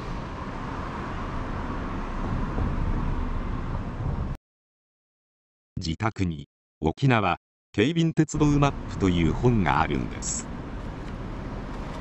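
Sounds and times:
distant road traffic: 0.0 - 4.4, 8.4 - 12.0.

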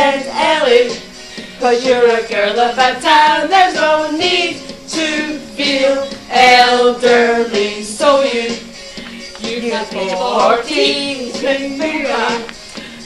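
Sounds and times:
women singing together: 0.0 - 12.6.

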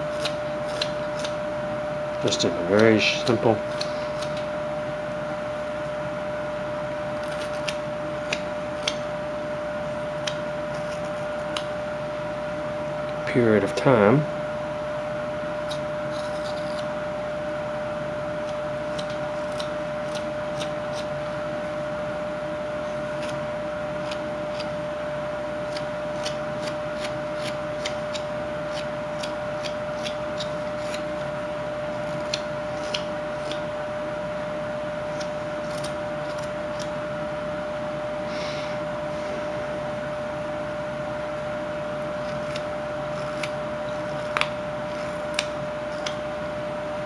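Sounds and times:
knife whittling wood: 0.0 - 1.4, 15.6 - 17.1, 25.6 - 33.9, 35.0 - 37.0, 42.1 - 46.3
steady hum: 0.0 - 47.0.

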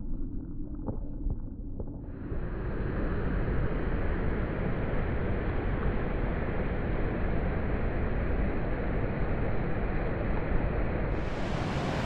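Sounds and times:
creek water rushing: 11.2 - 12.0.

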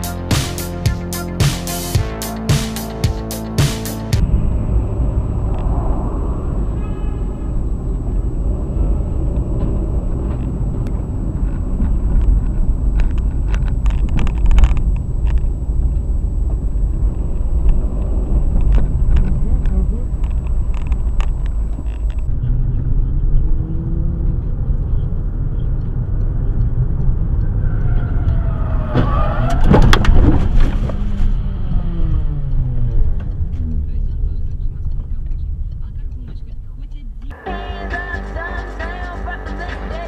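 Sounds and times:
engine and tyre rumble: 0.0 - 40.0
thin high whine: 0.2 - 22.3.

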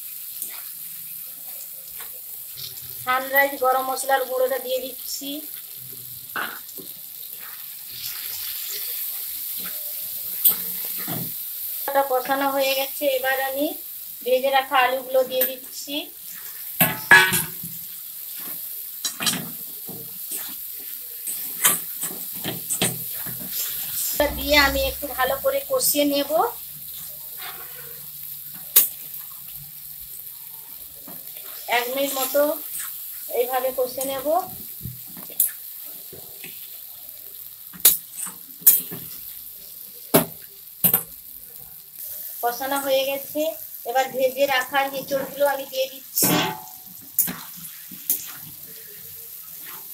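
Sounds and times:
spices sizzling in oil: 0.0 - 49.9
spatula scraping a pan: 18.3 - 25.4, 26.9 - 28.7, 31.1 - 33.3
metal spatula scraping pan: 27.4 - 28.1, 46.2 - 48.4.

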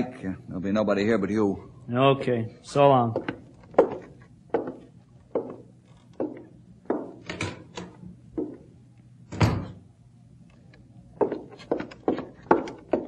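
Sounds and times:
footsteps on bare floor: 3.1 - 7.2, 8.4 - 8.7, 11.2 - 13.0
door shutting with heavy thud: 9.3 - 9.8.

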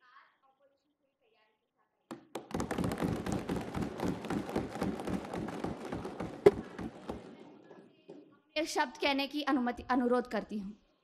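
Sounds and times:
sharp knock: 2.1 - 7.4
hands thumping on wooden desks: 2.1 - 7.5.

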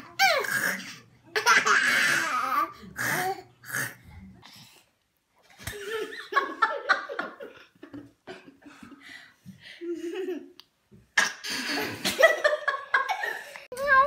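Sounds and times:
people laughing: 5.6 - 9.0.

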